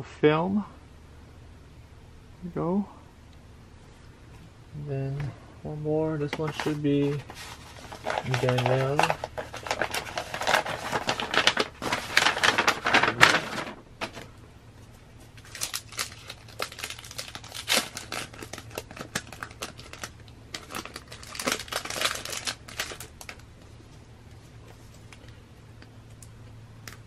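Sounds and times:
paper and plastic rustling: 6.2 - 14.4, 15.2 - 25.4
crackles and taps: 24.3 - 27.0.

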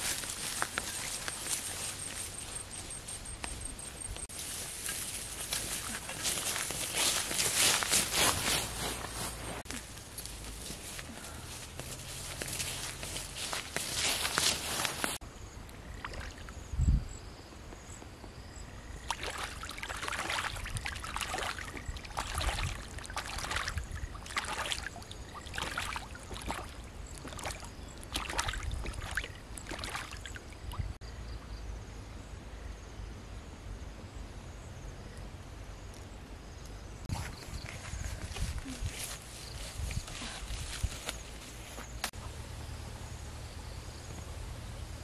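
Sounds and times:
duck splashing in water: 19.1 - 30.5.

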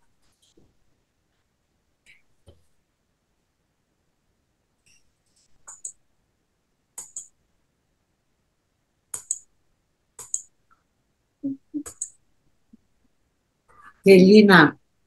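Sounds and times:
sharp clicks in pairs: 7.0 - 7.4, 9.1 - 9.5, 10.2 - 10.5.

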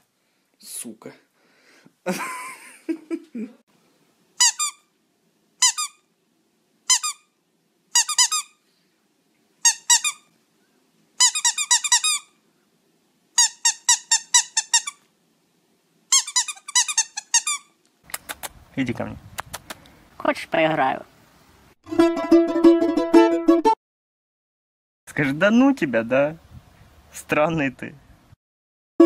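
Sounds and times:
squeaky toy squeaking: 4.4 - 4.9, 5.6 - 6.1, 6.9 - 7.3, 7.9 - 8.6, 9.6 - 10.3, 11.2 - 12.4, 13.4 - 15.0, 16.1 - 17.8.

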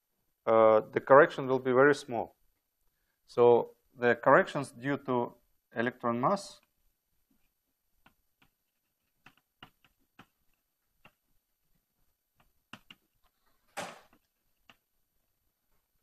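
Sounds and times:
chalk tapping on blackboard: 8.0 - 11.2.

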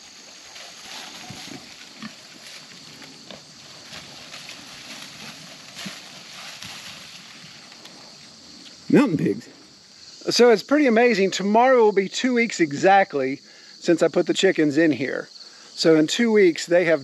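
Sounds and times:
insects chirring: 0.0 - 17.0
pigs grunting: 0.8 - 6.0.

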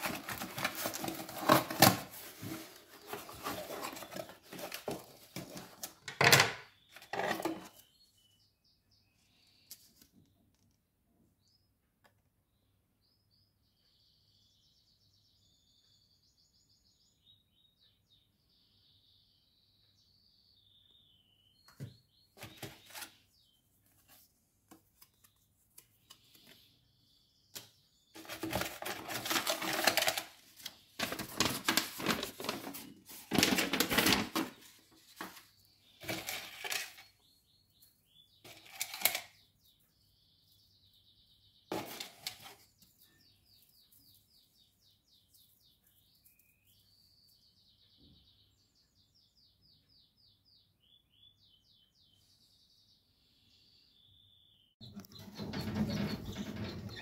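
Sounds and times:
cardboard and paper rustling: 0.0 - 6.3, 22.4 - 23.2, 28.2 - 37.1, 38.5 - 39.3, 41.7 - 42.8
canaries singing: 25.9 - 57.0.

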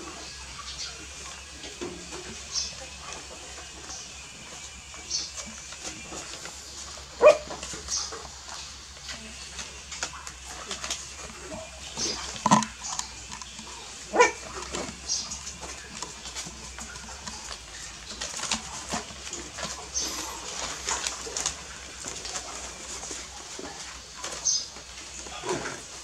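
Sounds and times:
puppies squeaking and whining: 2.3 - 8.7, 10.0 - 25.6
paws scratching on cloth: 4.6 - 26.0
puppy yelps: 7.2 - 7.5, 14.1 - 14.5.

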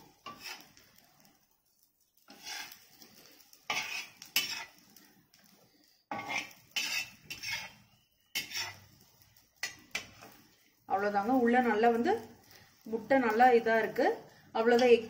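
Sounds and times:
metal spatula scraping griddle: 0.0 - 1.5, 2.1 - 10.7.

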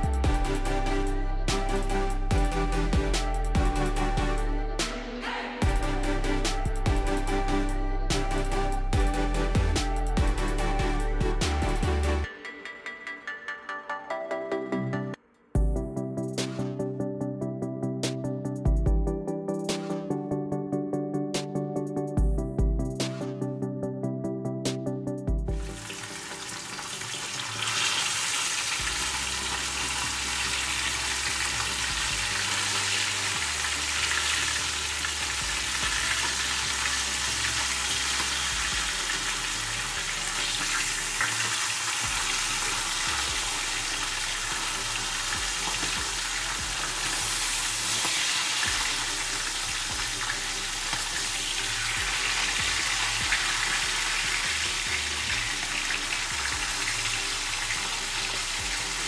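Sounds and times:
fish sizzling in oil: 25.6 - 59.0.

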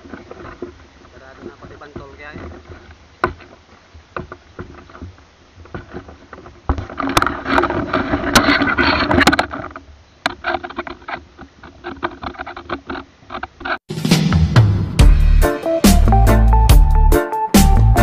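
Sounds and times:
water splashing: 0.0 - 13.4.

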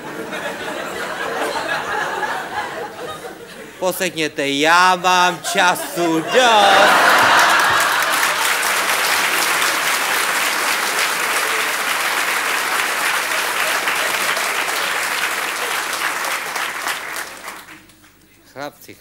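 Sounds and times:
audience laughing: 0.0 - 3.9, 4.8 - 16.4
audience applauding: 5.0 - 18.2.

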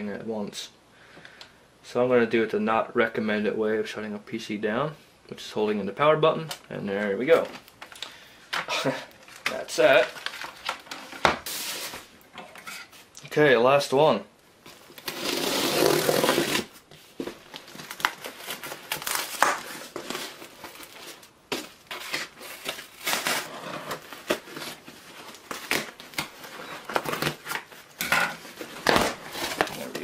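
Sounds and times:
tape and cardboard crackling: 7.3 - 12.4, 14.6 - 30.0.

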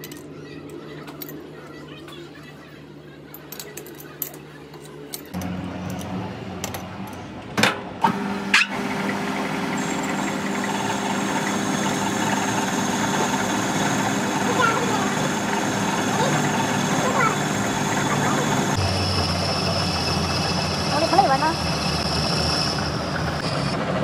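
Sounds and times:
machine humming: 5.4 - 24.0.

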